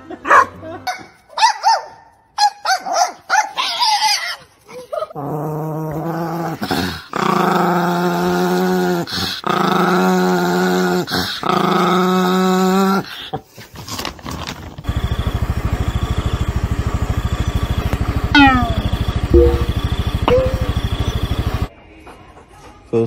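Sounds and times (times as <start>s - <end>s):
small dogs yapping: 1.0s - 5.2s, 18.3s - 19.0s
small dog growling: 4.8s - 13.5s.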